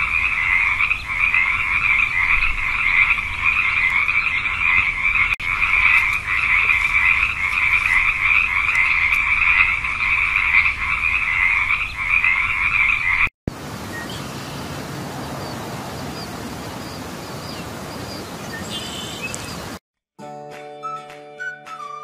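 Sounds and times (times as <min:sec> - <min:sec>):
frog chorus: 0:00.0 - 0:19.8
outdoor hiss: 0:13.5 - 0:19.8.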